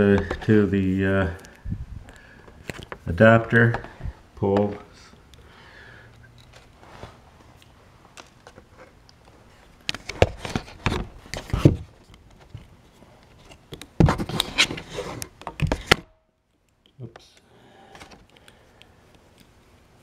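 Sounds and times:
scraping and rustling handling noise: 0:06.2 - 0:16.0.

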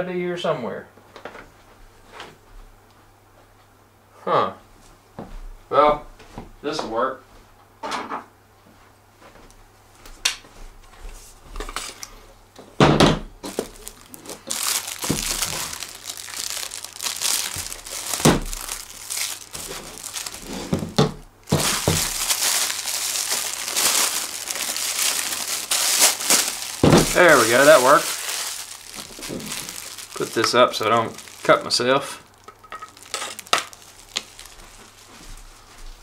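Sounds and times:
plastic wrap crinkling: 0:13.4 - 0:36.0.

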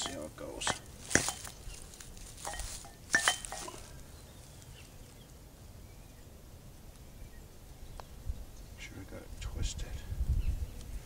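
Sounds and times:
metal dumbbells clinking: 0:02.4 - 0:03.8.

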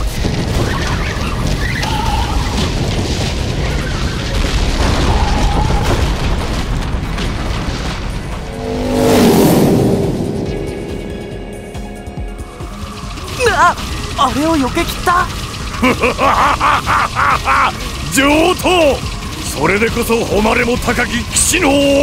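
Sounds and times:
trees crashing: 0:00.0 - 0:09.6, 0:11.6 - 0:22.0
motorcycle rumble: 0:06.3 - 0:18.1
background music: 0:08.1 - 0:22.0
falling pitch sweep: 0:08.4 - 0:13.4.

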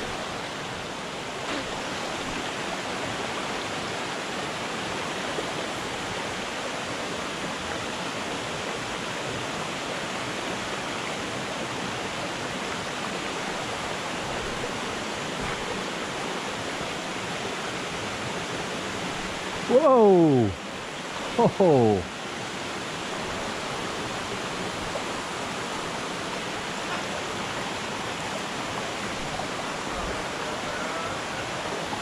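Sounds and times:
creek rushing over stones: 0:00.0 - 0:32.0.

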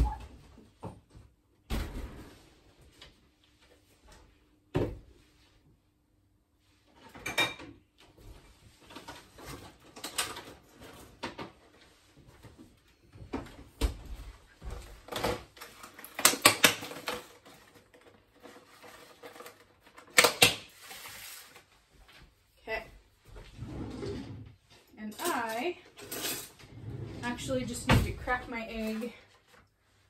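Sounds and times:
kitchen items clattering: 0:14.9 - 0:21.6, 0:23.8 - 0:29.5.

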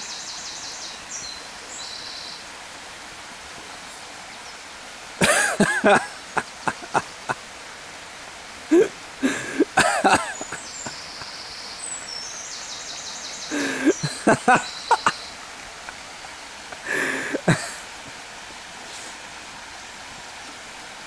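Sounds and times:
songbird chirping: 0:00.0 - 0:02.5, 0:05.8 - 0:07.3, 0:10.0 - 0:17.5
stream water running: 0:00.0 - 0:21.0.

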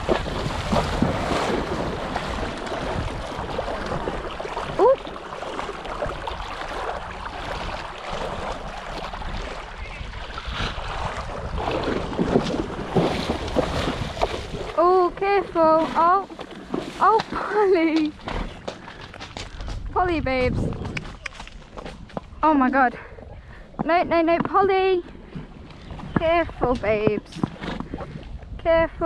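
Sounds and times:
pony splashing through water: 0:00.0 - 0:20.0
wind buffeting microphone: 0:00.0 - 0:29.0.

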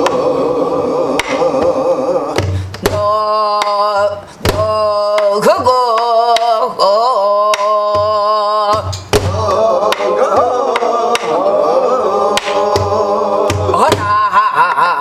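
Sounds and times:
several voices singing together: 0:00.0 - 0:14.3
barrel drum beaten with stick: 0:01.2 - 0:06.6, 0:07.5 - 0:11.4, 0:12.4 - 0:14.1.

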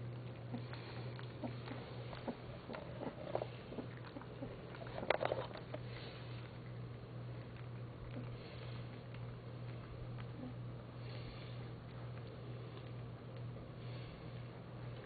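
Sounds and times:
low hum: 0:00.0 - 0:15.0
puppies licking and chewing food: 0:00.0 - 0:15.0.

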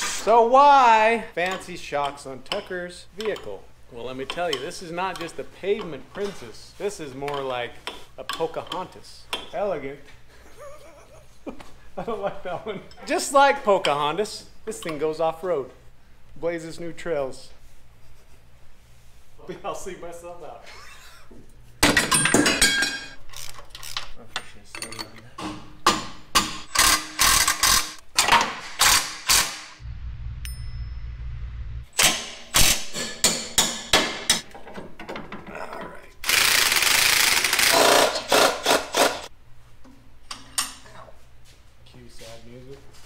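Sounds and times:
impact wrench rattling: 0:25.8 - 0:29.7, 0:36.2 - 0:39.3
low hum: 0:29.8 - 0:31.9.

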